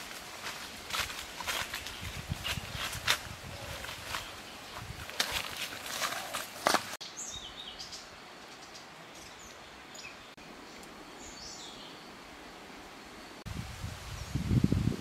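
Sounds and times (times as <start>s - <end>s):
footsteps rustling through brush: 0.0s - 7.0s
small birds chirping: 1.5s - 12.2s.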